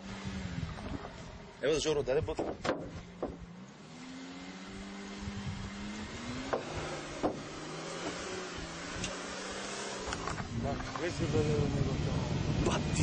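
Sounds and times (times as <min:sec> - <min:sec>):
car engine revving under load: 0:00.0 - 0:13.0.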